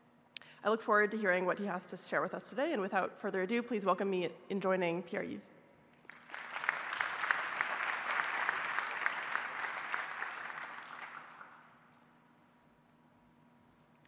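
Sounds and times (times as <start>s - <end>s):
audience applauding: 6.0s - 11.8s.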